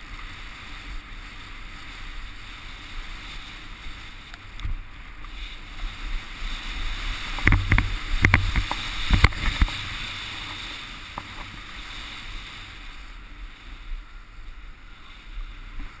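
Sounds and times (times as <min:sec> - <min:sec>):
snowboard hissing over snow: 0:00.0 - 0:16.0
wind rumbling on microphone: 0:00.0 - 0:16.0
snowboard knocking and scraping: 0:04.2 - 0:12.0, 0:15.6 - 0:16.0.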